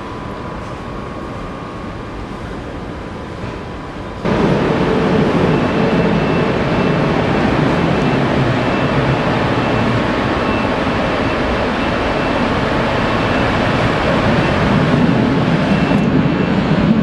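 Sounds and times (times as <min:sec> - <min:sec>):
electric locomotive running: 0:00.0 - 0:17.0.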